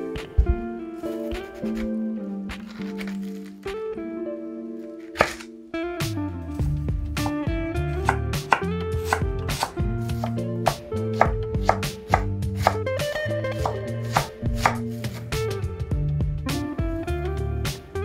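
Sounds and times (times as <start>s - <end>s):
background guitar music: 0.0s - 18.0s
knife chopping on cutting board: 5.2s - 5.4s, 8.0s - 12.8s, 13.6s - 15.2s.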